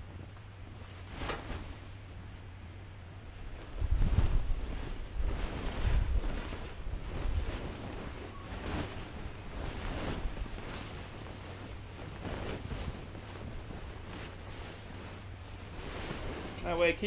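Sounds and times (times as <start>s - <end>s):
fabric cover rustling and swishing: 0.0s - 2.4s, 3.2s - 17.0s.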